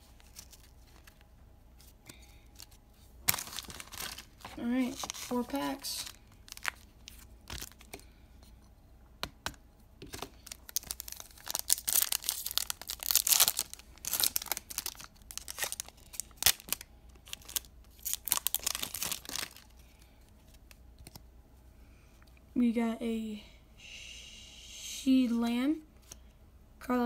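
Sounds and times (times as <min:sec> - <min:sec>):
wrappers ripping and crinkling: 0:00.0 - 0:01.2, 0:02.6 - 0:07.9, 0:10.1 - 0:19.9.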